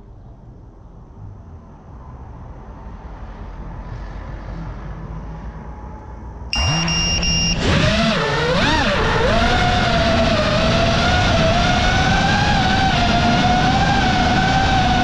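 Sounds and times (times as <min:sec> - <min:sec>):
short high beeps: 0:06.5 - 0:07.9
quadcopter motors whining: 0:06.6 - 0:15.0.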